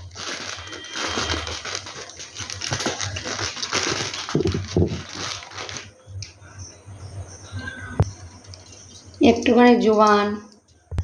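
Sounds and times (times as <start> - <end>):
potatoes rustling in a bowl: 0.0 - 5.9.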